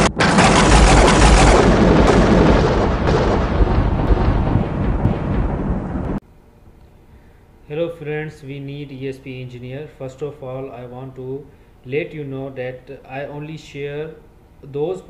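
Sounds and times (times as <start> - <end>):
thunder clap and rumble: 0.0 - 6.2.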